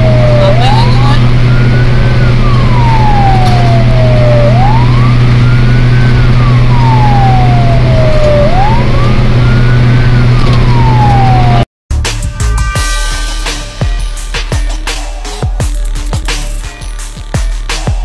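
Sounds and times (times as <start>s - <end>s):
fire truck siren wailing: 0.0s - 11.7s
truck engine drone: 0.0s - 18.0s.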